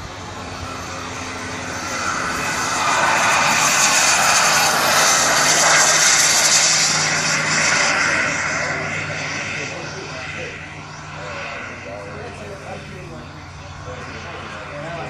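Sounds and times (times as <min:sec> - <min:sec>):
model jet turbine hiss and whine: 0:00.0 - 0:15.0.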